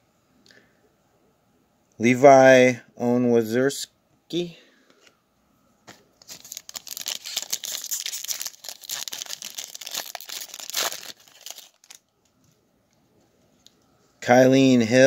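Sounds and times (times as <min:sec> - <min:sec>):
wrapper crinkling and tearing: 0:06.2 - 0:12.1.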